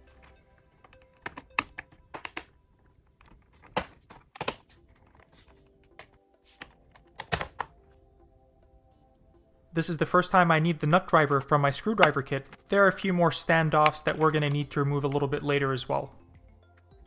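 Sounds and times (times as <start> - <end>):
plastic clicks and snaps: 0.2 - 2.5, 3.2 - 4.7, 12.0 - 12.6, 13.8 - 15.2.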